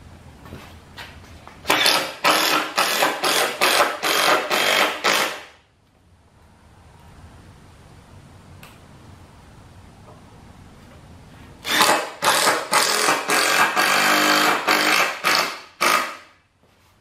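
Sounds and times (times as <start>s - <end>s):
cordless drill driving screw into wood: 1.7s - 5.5s, 11.6s - 16.3s.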